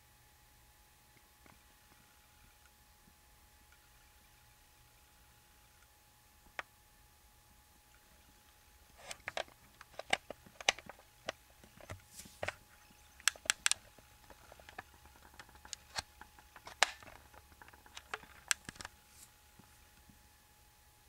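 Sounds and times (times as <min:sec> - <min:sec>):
snake jaws clicking: 0:13.2 - 0:19.3.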